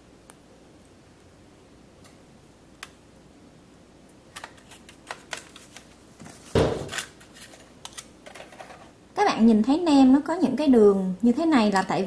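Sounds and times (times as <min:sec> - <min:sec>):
patty thud on rack: 0:06.5 - 0:07.0.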